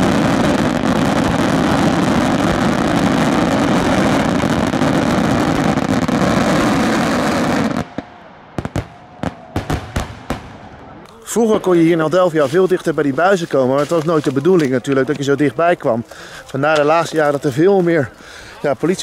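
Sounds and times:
firework cracks and pops: 0:00.0 - 0:10.7, 0:13.0 - 0:15.2
fireworks barrage: 0:00.0 - 0:15.3.

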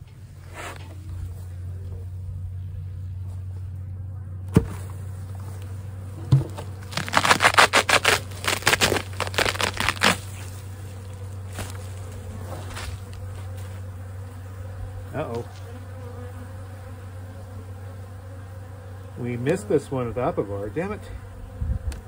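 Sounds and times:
crackling tearing scrapes: 0:06.6 - 0:13.8.

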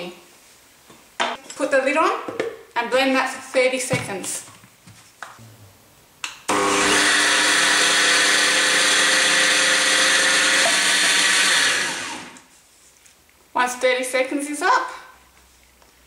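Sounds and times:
blender running: 0:06.5 - 0:12.4.

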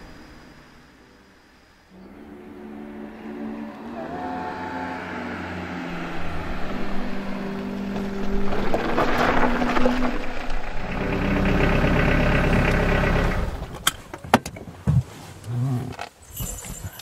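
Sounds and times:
car engine approaching: 0:00.0 - 0:14.1
tyres crunching on gravel: 0:05.9 - 0:11.8.

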